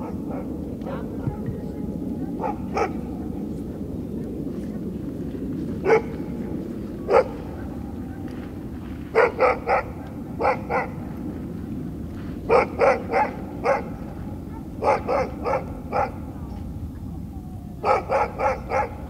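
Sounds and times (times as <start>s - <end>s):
dog barking: 0.0s - 0.6s, 2.4s - 3.0s, 5.8s - 6.2s, 7.0s - 7.5s, 9.1s - 11.0s, 12.5s - 16.3s, 17.8s - 19.0s
low background noise: 0.0s - 19.0s.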